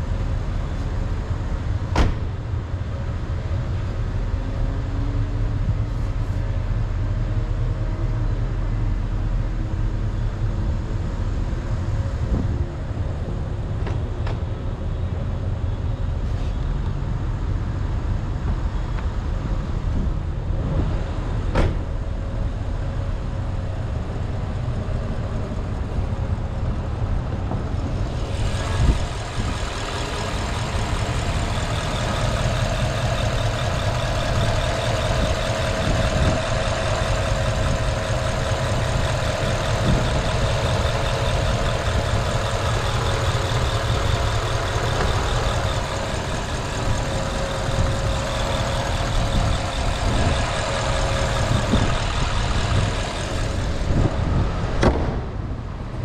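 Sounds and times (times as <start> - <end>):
thump: 1.9 - 2.3, 21.5 - 21.9, 54.8 - 55.4
car engine running: 23.4 - 54.6.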